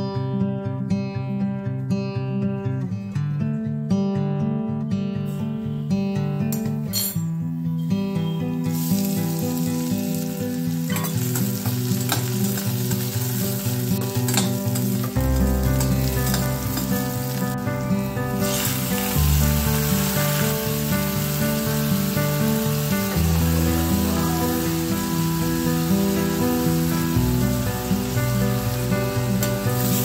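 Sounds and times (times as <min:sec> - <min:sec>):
onions sizzling in hot oil: 0:08.6 - 0:30.0.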